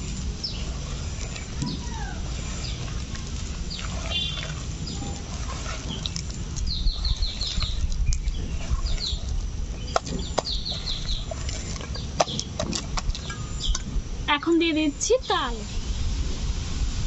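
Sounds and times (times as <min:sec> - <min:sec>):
hand kneading dough in steel bowl: 0:00.0 - 0:15.6
steady low rumble: 0:00.0 - 0:17.0
small birds chirping: 0:00.2 - 0:15.6.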